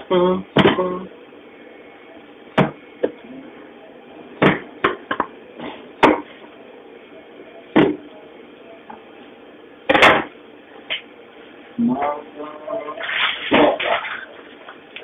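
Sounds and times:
knocks and thuds on counter: 2.6s - 3.2s.

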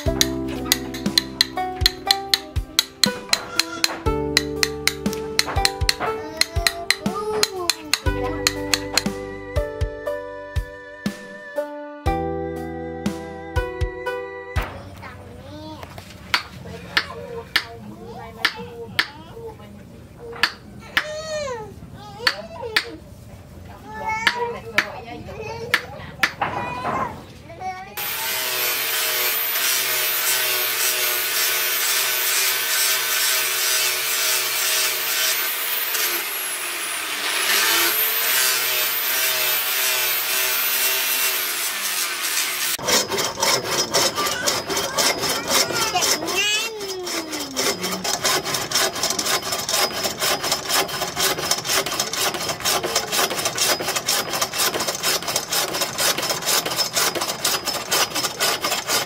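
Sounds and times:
angle grinder on knife blade: 0.0s - 9.2s, 28.0s - 59.0s
hacksaw sawing: 0.0s - 9.2s, 20.4s - 21.1s, 28.0s - 59.0s.

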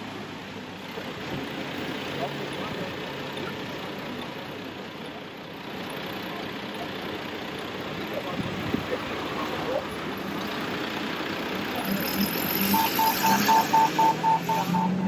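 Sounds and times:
city traffic noise: 0.0s - 15.0s
crossing signal beeping: 11.8s - 15.0s.

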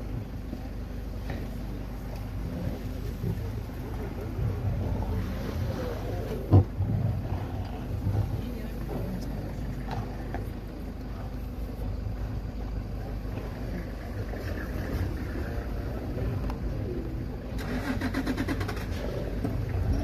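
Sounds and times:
vehicle engine idling: 0.0s - 20.0s
rapid rattling pulses: 11.3s - 20.0s.

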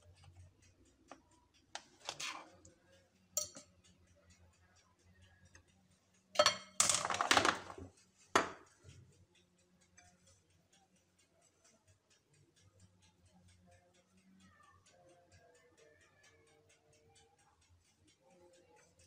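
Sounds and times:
faint steady ticking: 0.0s - 6.8s, 7.8s - 19.0s
utensils clinking on ceramic bowl: 2.0s - 2.5s, 3.4s - 3.7s, 6.4s - 8.6s.

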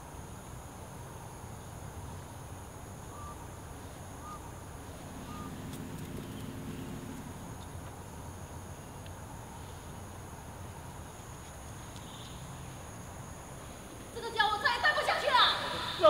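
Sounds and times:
bird chirps: 3.1s - 7.3s.

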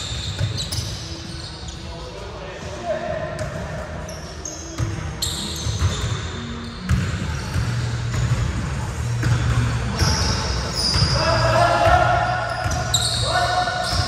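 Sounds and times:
sneaker squeaks: 0.0s - 2.3s, 3.4s - 14.0s.

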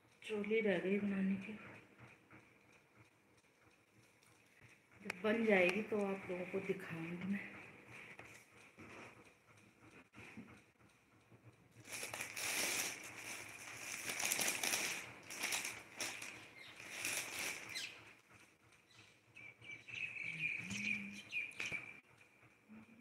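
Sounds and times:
clothing and phone rustling: 11.8s - 18.0s.

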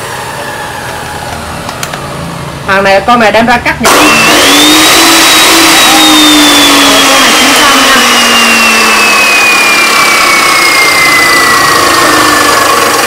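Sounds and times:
chop saw motor whine: 0.0s - 2.2s, 3.8s - 13.0s
saw disc grinding metal: 3.8s - 13.0s.

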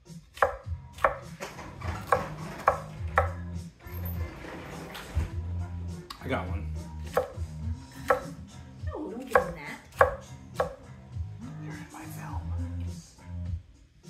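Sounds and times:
knife chopping on wooden board: 0.3s - 3.4s, 7.0s - 7.4s, 8.0s - 8.4s, 9.3s - 10.8s.

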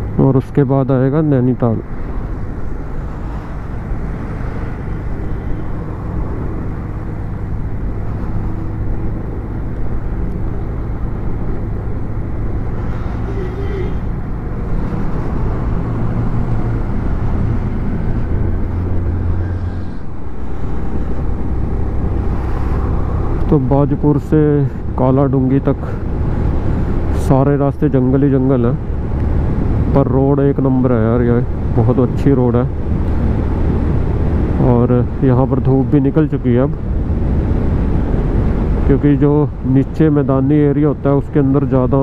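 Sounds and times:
motorcycle engine hum: 0.0s - 42.0s
road noise: 0.0s - 42.0s
wind noise: 1.8s - 40.2s.

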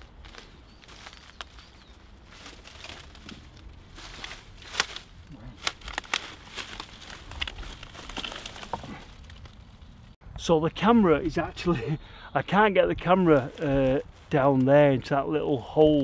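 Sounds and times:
dry leaves crunching: 0.0s - 10.2s, 13.0s - 16.0s
twigs snapping: 0.1s - 10.1s.

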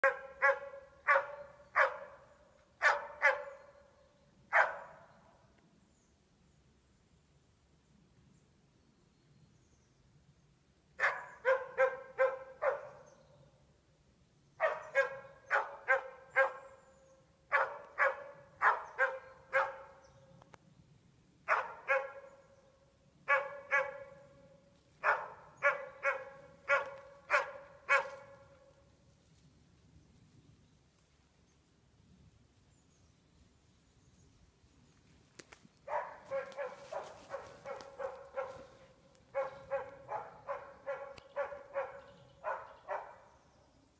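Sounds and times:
dog barking with echo: 0.0s - 2.2s, 2.8s - 3.7s, 4.5s - 5.1s, 11.0s - 13.1s, 14.6s - 16.8s, 17.5s - 20.0s, 21.5s - 22.4s, 23.3s - 24.2s, 25.0s - 28.5s, 35.9s - 43.3s.

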